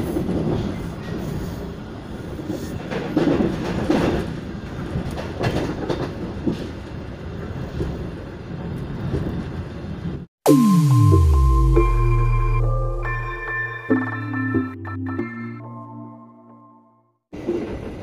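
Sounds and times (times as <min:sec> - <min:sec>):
train rumbling: 0:00.0 - 0:10.3, 0:17.3 - 0:18.0.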